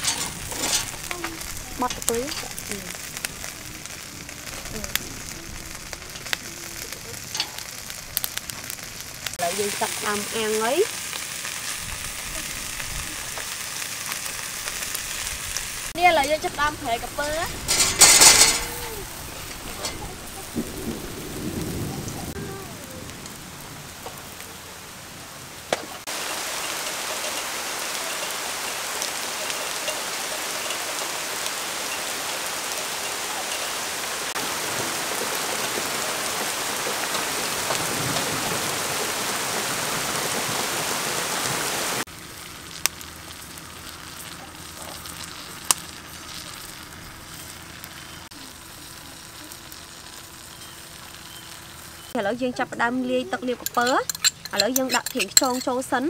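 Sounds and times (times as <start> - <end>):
heavy rain falling: 0.0 - 44.2.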